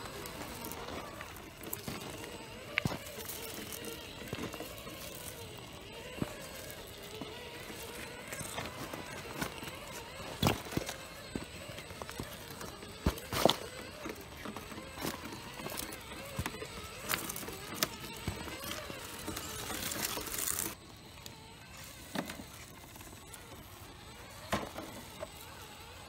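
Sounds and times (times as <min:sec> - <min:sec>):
clicks and knocks of stones: 0:00.0 - 0:26.0
electric motor whine: 0:00.0 - 0:26.0.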